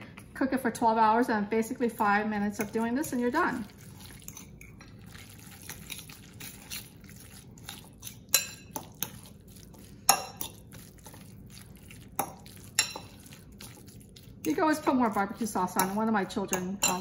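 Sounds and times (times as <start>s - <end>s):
forks clinking on glass bowl: 2.6s - 14.6s, 15.7s - 17.0s.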